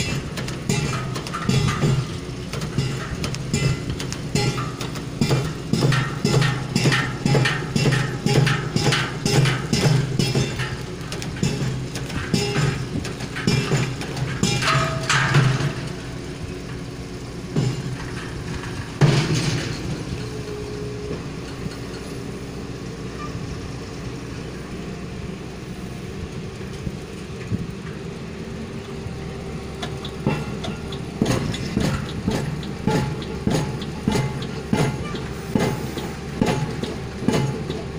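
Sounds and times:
metallic knocks and clanks: 0.0 - 20.5, 29.8 - 37.9
pile-driving rig engines running: 0.0 - 37.9.

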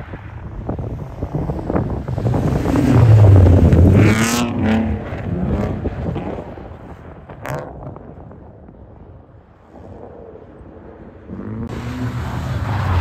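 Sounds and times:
wind buffeting microphone: 0.0 - 11.6
car engines revving: 0.8 - 8.1, 10.6 - 13.0.

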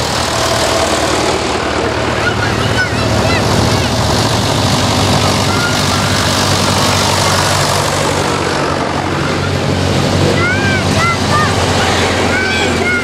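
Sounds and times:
road and tyre noise: 0.0 - 13.0
tractor engines running: 0.0 - 13.0.

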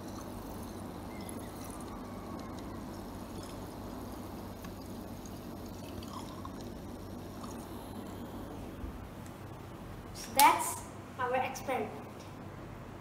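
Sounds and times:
milk frother motor hum: 0.0 - 9.4.

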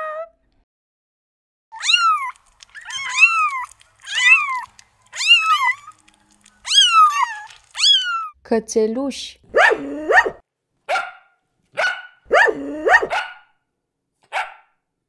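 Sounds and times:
kittens mewing: 1.8 - 8.3.

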